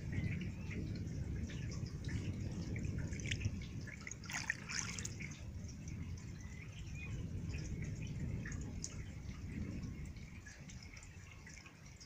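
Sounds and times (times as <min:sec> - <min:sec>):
low rumble: 0:00.0 - 0:10.8
water drips: 0:00.0 - 0:12.0
hand splashing in puddle: 0:04.2 - 0:05.1.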